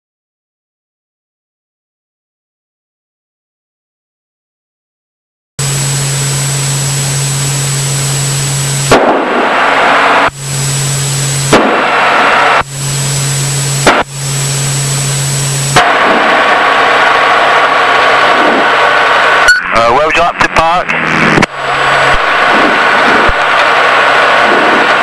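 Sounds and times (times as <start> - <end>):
aircraft engine and propeller drone: 5.6 - 25.0.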